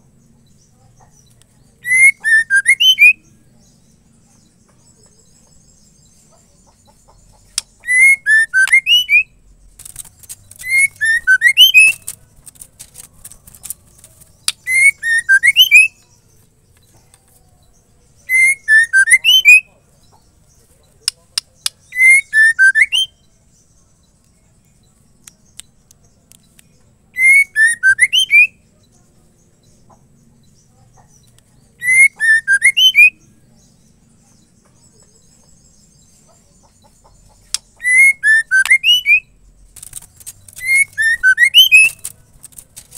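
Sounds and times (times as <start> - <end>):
bird whistled phrase: 1.8 - 3.2, 7.8 - 9.3, 18.3 - 19.7, 21.9 - 23.2, 27.2 - 28.6, 31.8 - 33.2, 37.8 - 39.3, 40.6 - 42.1
sharp clicks: 9.7 - 15.0, 39.6 - 42.9.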